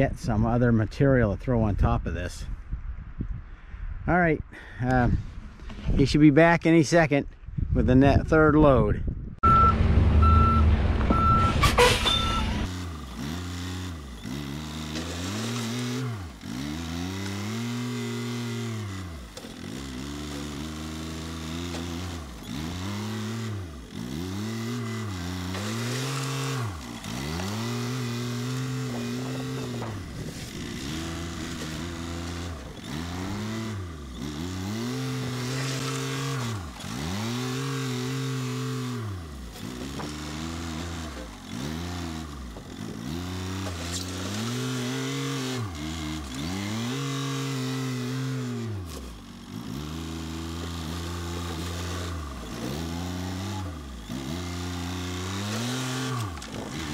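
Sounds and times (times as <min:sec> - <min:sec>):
truck reversing beeper: 0:09.4 - 0:12.7
loader engine working: 0:09.4 - 0:56.9
truck engine rumble: 0:09.4 - 0:56.9.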